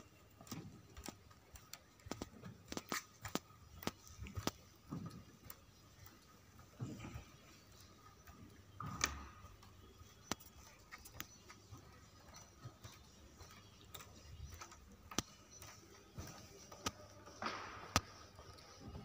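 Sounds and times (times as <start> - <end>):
faint sharp clicks and taps: 0.0 - 19.0.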